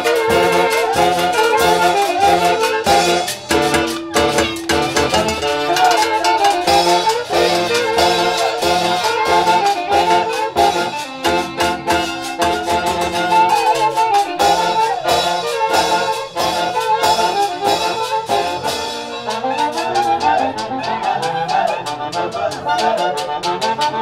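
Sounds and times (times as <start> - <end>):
steady beat: 0.0 - 17.7
saxophones and trumpets melody: 0.0 - 24.0.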